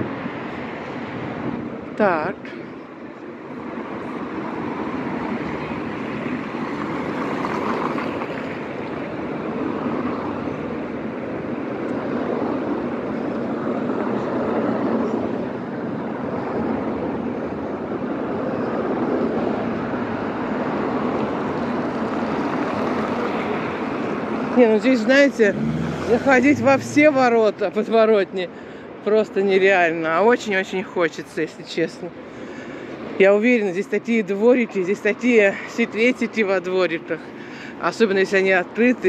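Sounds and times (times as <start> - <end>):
cars driving past: 0.0 - 29.4.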